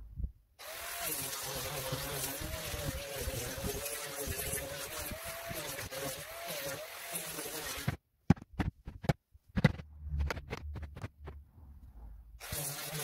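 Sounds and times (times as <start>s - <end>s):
sharp knocks and clicks: 7.9s - 11.4s
low hum: 9.4s - 12.4s.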